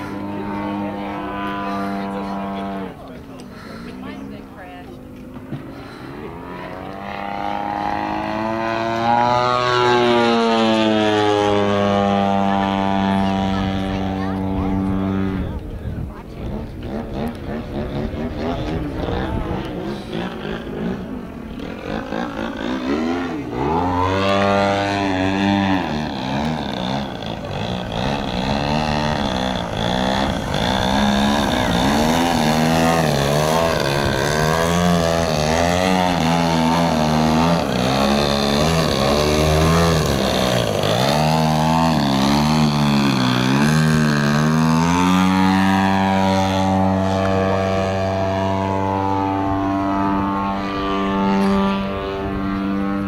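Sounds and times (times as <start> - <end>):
model plane engine and propeller: 0.0 - 53.0.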